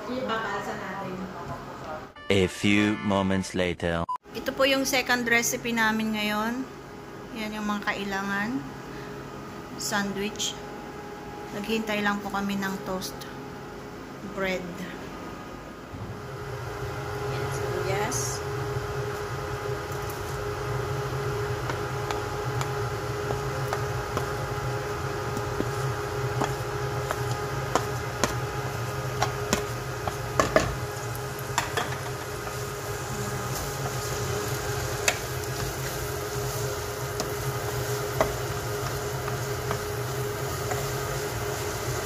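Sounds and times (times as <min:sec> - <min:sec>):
steady hum: 0:00.0 - 0:42.0
onion sizzling in hot oil: 0:16.4 - 0:42.0
utensils clicking on pan: 0:33.6 - 0:41.4.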